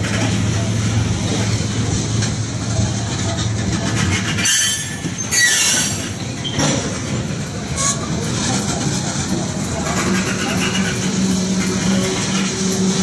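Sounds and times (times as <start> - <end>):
train wheels rolling on rails: 0.0 - 13.0
high wheel squeals: 4.1 - 6.8.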